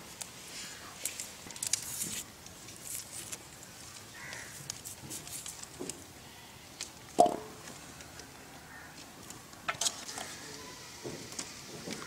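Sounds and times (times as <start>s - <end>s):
papery onion skins crackling: 0.1s - 6.1s.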